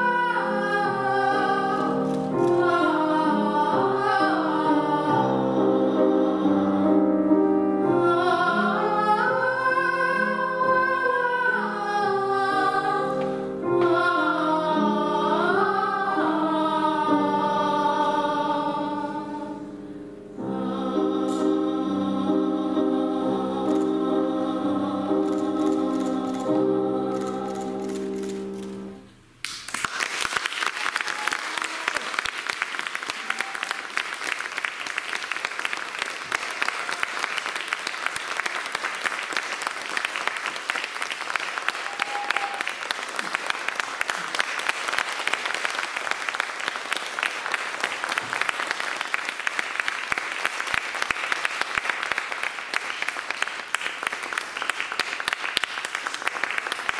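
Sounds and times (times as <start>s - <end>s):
girls singing: 0.0s - 19.8s, 20.4s - 28.9s
grand piano: 0.0s - 29.4s
audience applause: 29.4s - 56.9s.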